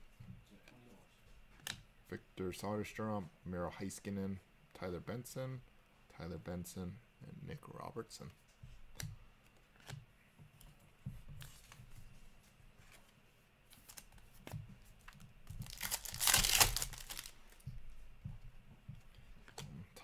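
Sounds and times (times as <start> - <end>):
cards clicking and rustling: 13.7 - 17.6
wrapper crinkling rip: 15.6 - 17.5.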